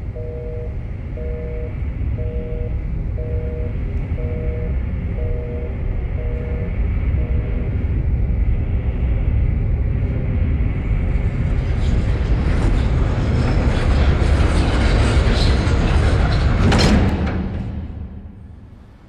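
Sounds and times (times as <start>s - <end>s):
deep rumble with rising hiss: 0.0s - 19.0s.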